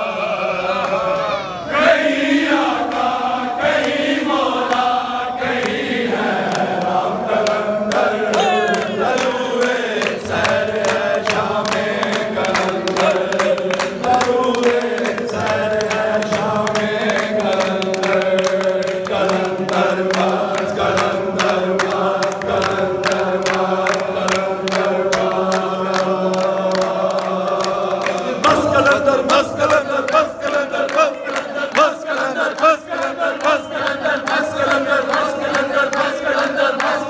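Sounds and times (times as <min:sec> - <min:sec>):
men chanting: 0:00.0 - 0:37.0
hand clapping: 0:02.5 - 0:37.0
singer on a microphone: 0:07.0 - 0:37.0
crowd shouting: 0:08.2 - 0:09.2.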